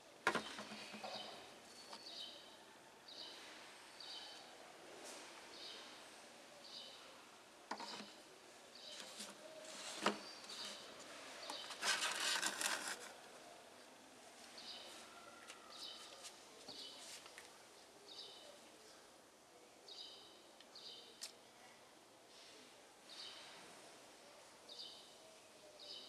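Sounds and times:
bird chirping: 0:00.3 - 0:04.5, 0:08.8 - 0:12.9
plastic rattling and rustling: 0:11.4 - 0:13.2.

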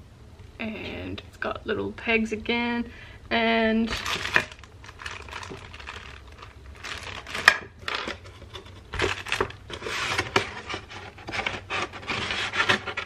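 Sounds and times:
cardboard and paper rustling: 0:03.9 - 0:13.0.

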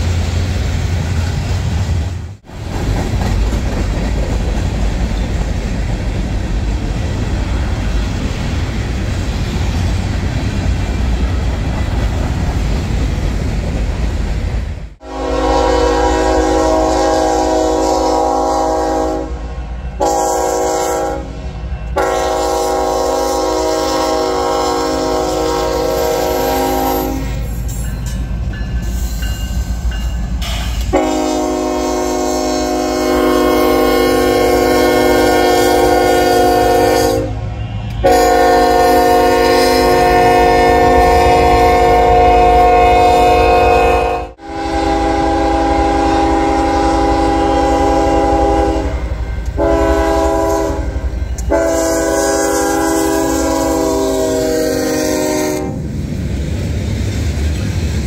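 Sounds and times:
train rumble and rail noise: 0:00.0 - 0:58.0
locomotive air horn blasts: 0:15.0 - 0:27.5, 0:30.9 - 0:55.8.

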